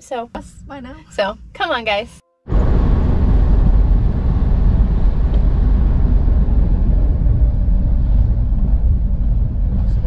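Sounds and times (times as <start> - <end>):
car road noise: 0.2 - 10.0.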